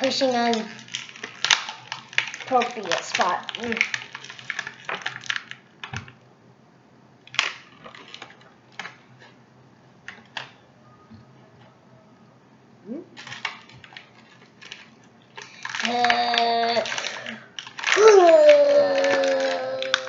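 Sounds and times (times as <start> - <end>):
plastic wrapper crinkling: 0.0 - 6.2, 7.3 - 9.4, 13.2 - 20.0.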